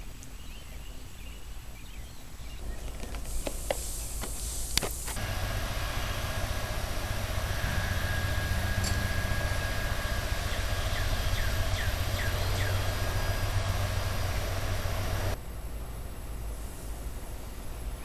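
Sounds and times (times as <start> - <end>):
air conditioner hum and fan drone: 4.7 - 18.0
high falling chirps: 5.2 - 15.4.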